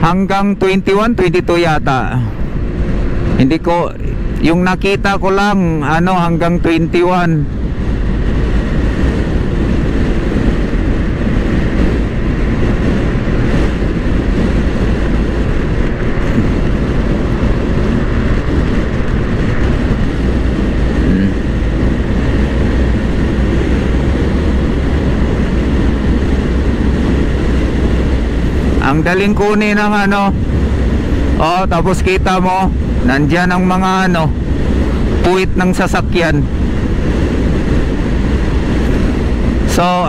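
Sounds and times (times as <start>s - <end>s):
wind and road noise: 0.0s - 40.0s
scooter engine droning: 7.5s - 29.4s.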